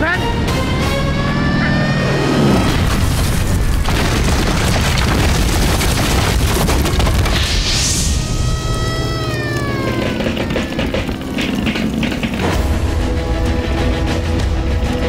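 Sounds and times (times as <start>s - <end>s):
bomb explosion: 2.4s - 8.8s
loud rumble and crackle: 2.5s - 15.0s.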